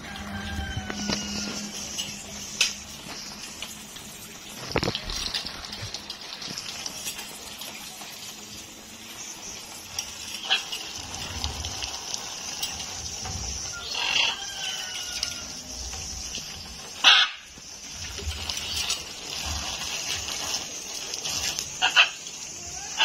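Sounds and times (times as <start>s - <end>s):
water spray hissing: 0.0s - 23.0s
parrot harsh call: 17.0s - 17.5s.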